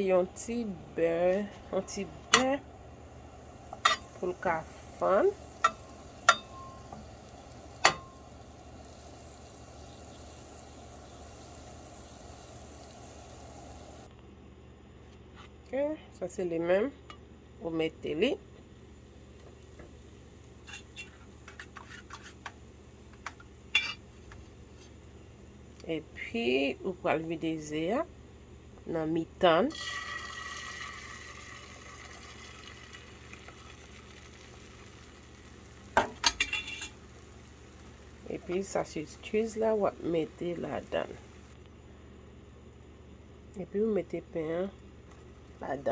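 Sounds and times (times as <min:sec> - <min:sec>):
butter sizzling in a pan: 0:01.1 - 0:14.1, 0:29.7 - 0:41.6.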